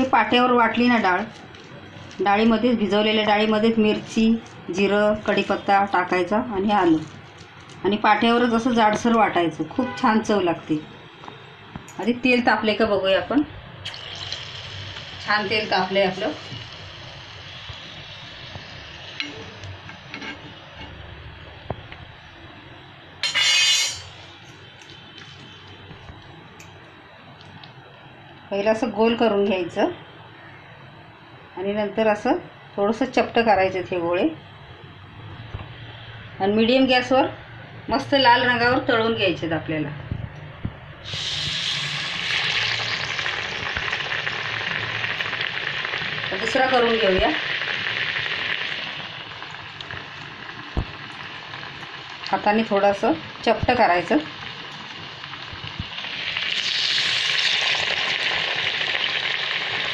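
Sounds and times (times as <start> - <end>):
hot oil sizzling: 0.0 - 10.6, 11.8 - 27.7, 41.0 - 59.9.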